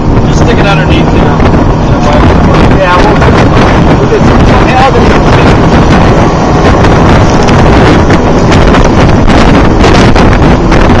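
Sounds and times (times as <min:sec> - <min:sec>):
strong wind buffeting microphone: 0:00.0 - 0:11.0.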